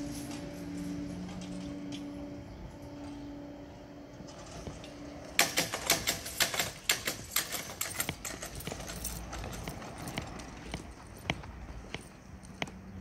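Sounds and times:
steady hum: 0.0 - 5.8
barrier skirts rattling: 4.2 - 13.0.

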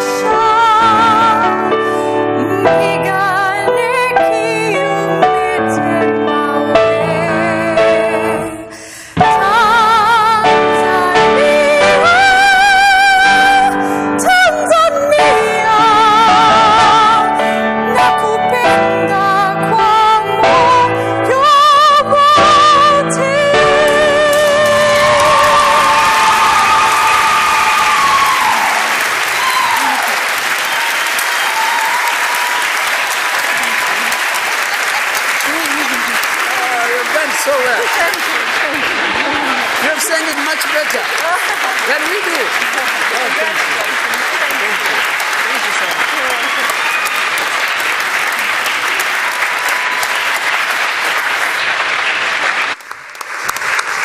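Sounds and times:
audience applauding: 23.8 - 54.0.

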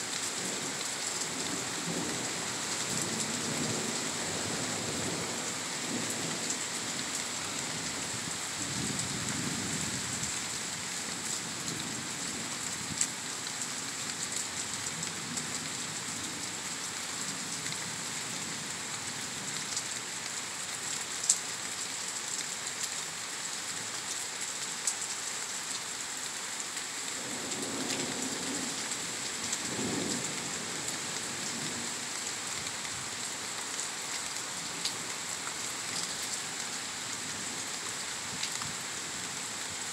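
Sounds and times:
heavy rain hissing: 26.4 - 39.9.

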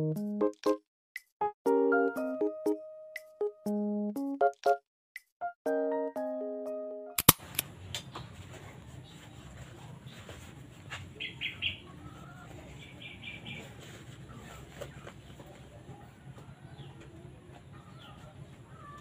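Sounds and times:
gentle keyboard music: 0.0 - 0.8, 1.4 - 4.8, 5.4 - 7.2
sharp click: 7.2 - 8.1
small bird chirping: 11.2 - 14.5.

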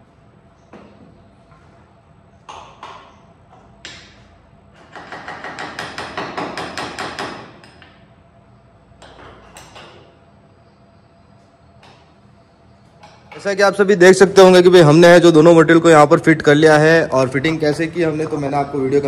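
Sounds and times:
hammer-like knocking: 4.8 - 7.9.

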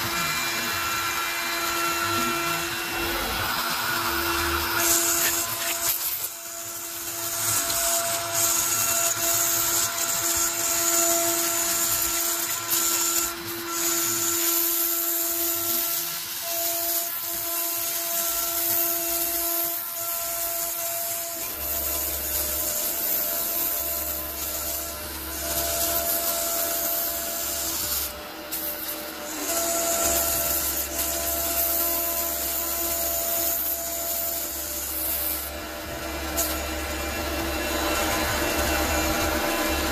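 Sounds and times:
router spindle whining: 0.0 - 39.9
scratchy cutting of acrylic: 4.0 - 14.6.

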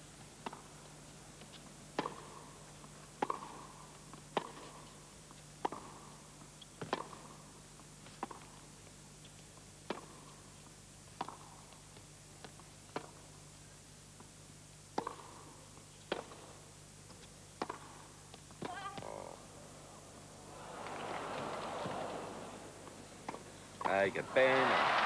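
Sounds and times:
tennis ball bouncing: 2.0 - 2.4, 3.2 - 3.6, 5.6 - 6.0, 11.2 - 11.5, 15.0 - 15.5, 16.1 - 16.5, 17.1 - 24.2
steady low hum: 17.4 - 24.3
racquet striking tennis ball: 17.6 - 24.6
wavering vocal cry: 20.4 - 23.0.

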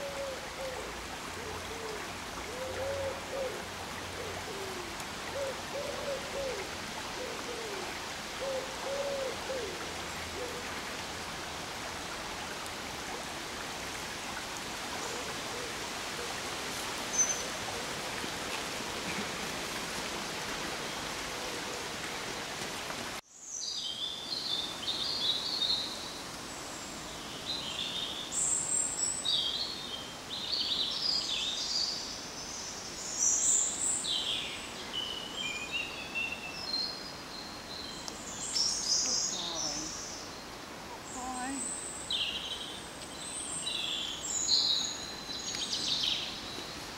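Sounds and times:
small birds singing and chirping: 26.7 - 46.9.

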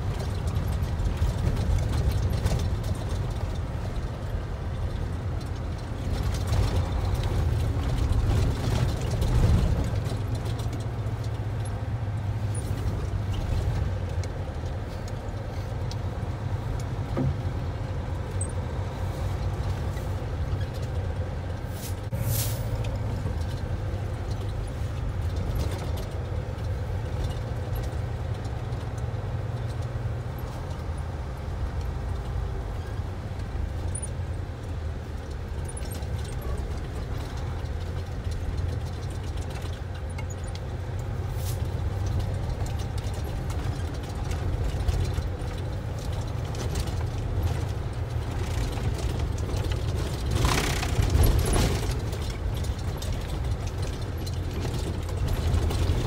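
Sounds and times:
truck rumbling on gravel: 0.0 - 56.0
light rattles: 31.7 - 56.0.

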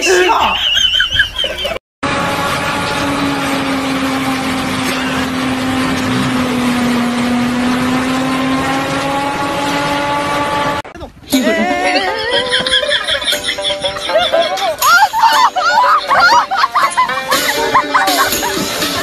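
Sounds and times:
harvester mechanical drone: 0.6 - 11.0
pitched hum: 0.7 - 19.0.

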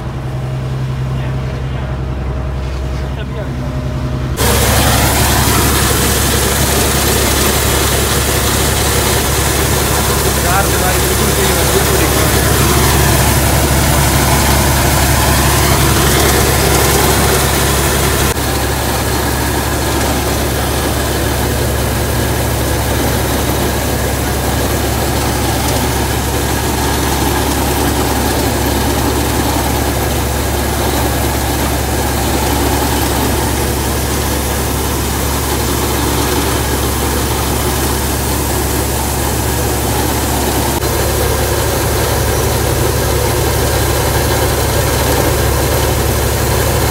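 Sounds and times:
combine harvester engine running: 0.0 - 46.9
unloading auger emptying seed: 4.4 - 46.9.

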